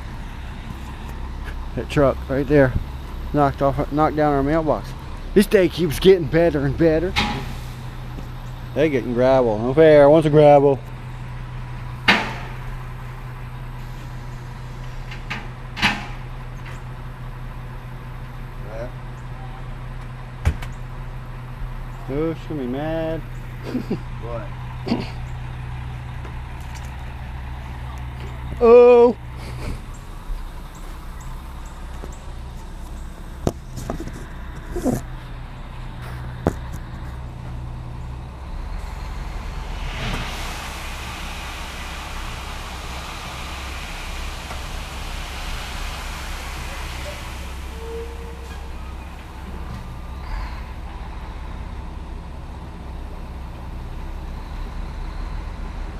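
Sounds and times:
truck engine running: 0:00.0 - 0:55.9
loud rushing noise: 0:38.6 - 0:51.4.

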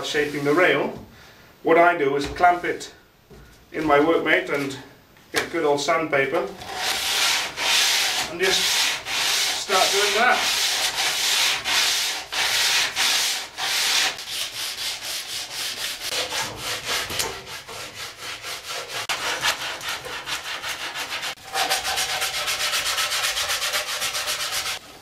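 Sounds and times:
sandpaper rubbing on wood: 0:06.6 - 0:24.8.

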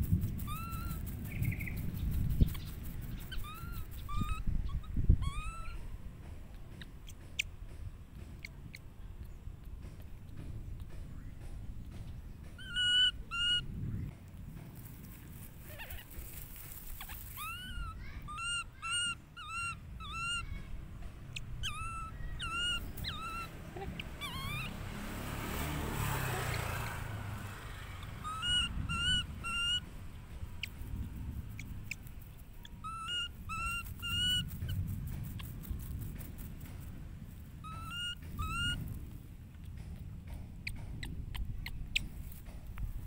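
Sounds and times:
baby monkey squeaky calls: 0:00.0 - 0:07.6, 0:08.4 - 0:13.8, 0:15.3 - 0:25.0, 0:26.0 - 0:39.8, 0:40.5 - 0:42.6
rustling hiss: 0:14.4 - 0:17.9.

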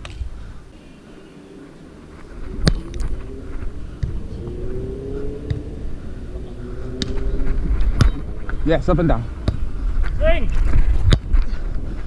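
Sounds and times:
wind rumble on microphone: 0:02.1 - 0:12.0
engine hum rising in pitch: 0:02.4 - 0:08.9.

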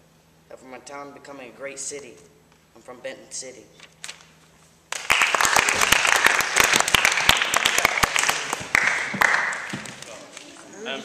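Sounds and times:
audience applauding: 0:04.9 - 0:10.4.

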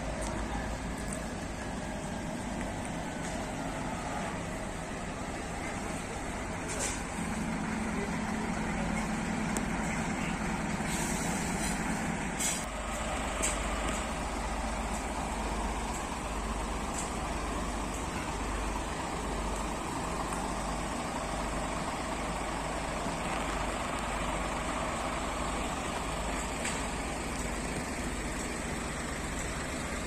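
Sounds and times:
diesel truck engine pulling away: 0:00.0 - 0:30.0
short air hisses: 0:10.8 - 0:11.8, 0:12.4 - 0:12.7.

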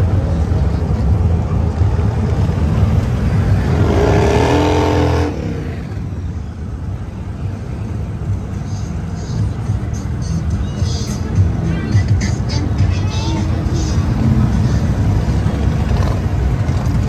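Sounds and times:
motorcycle engines rumbling: 0:00.0 - 0:17.0
motorcycle engine revving: 0:03.4 - 0:05.9.

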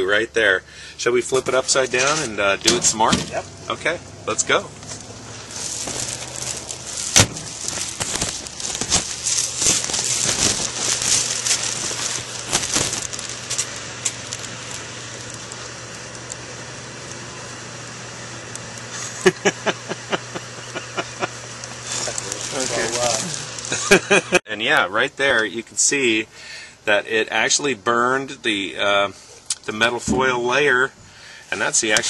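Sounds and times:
microwave oven humming: 0:00.0 - 0:32.0
foil crackling and popping: 0:01.3 - 0:03.5, 0:04.5 - 0:24.4.

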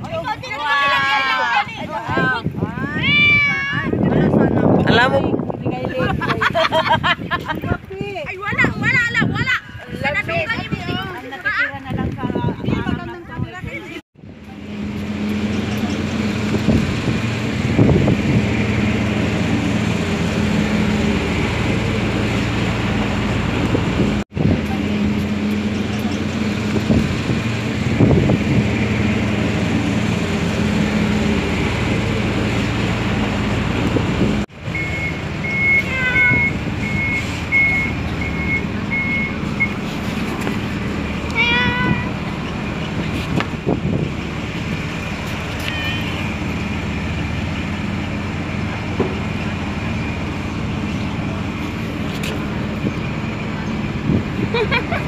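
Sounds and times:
vehicle engine idling: 0:14.2 - 0:55.0.

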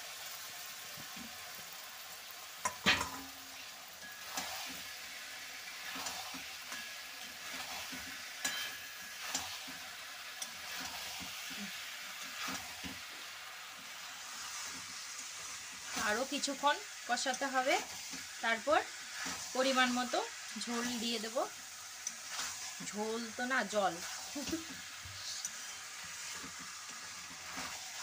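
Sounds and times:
vegetables sizzling in oil: 0:00.0 - 0:28.0
metal spatula scraping a pan: 0:02.7 - 0:13.1, 0:22.0 - 0:22.9, 0:23.6 - 0:28.0.

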